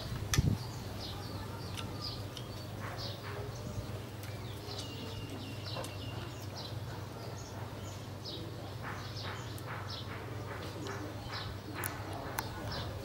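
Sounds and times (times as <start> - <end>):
small birds chirping: 0.0 - 13.0
soft chewing: 1.5 - 7.7.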